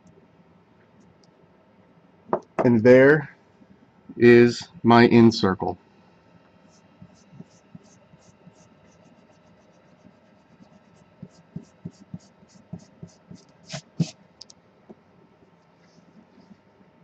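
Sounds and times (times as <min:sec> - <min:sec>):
pencil scratching on paper: 0:06.7 - 0:14.2
pencil scrapes: 0:07.0 - 0:14.1.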